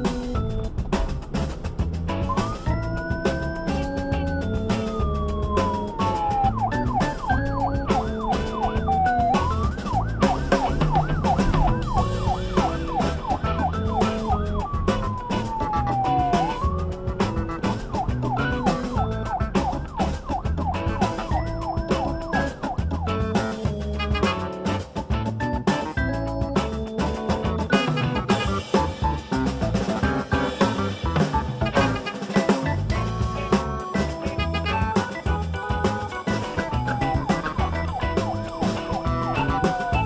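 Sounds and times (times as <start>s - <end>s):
background music: 0.0s - 40.0s
electronic siren wail and yelp: 2.2s - 24.2s, 31.7s - 40.0s.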